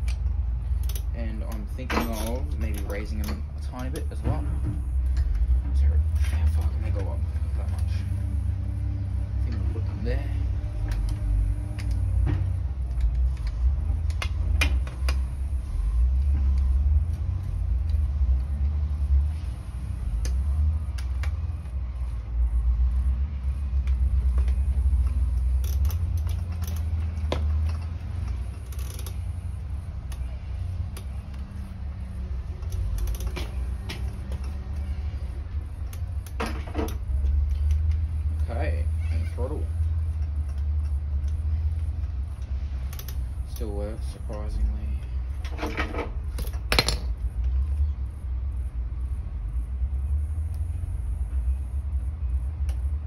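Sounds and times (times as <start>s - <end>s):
hand tools clicking and creaking: 0.0s - 8.4s, 9.3s - 15.4s, 23.6s - 47.5s
steady low rumble: 0.0s - 53.0s.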